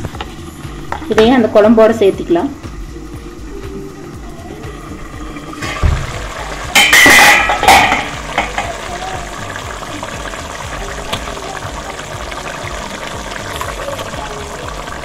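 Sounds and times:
low thump: 5.8s - 6.2s.

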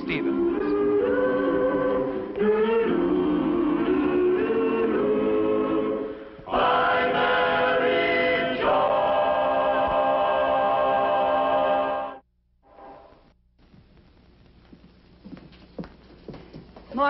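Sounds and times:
choir singing sustained chords: 0.2s - 13.1s.

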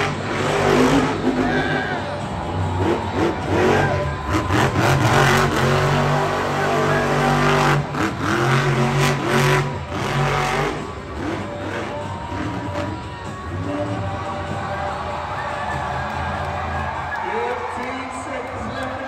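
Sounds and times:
truck engine revving hard: 0.0s - 14.6s.

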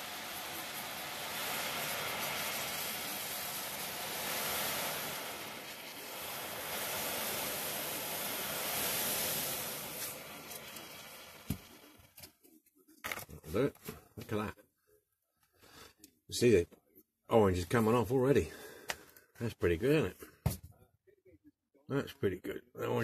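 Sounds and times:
hissing and fizzing liquid: 0.0s - 12.4s.

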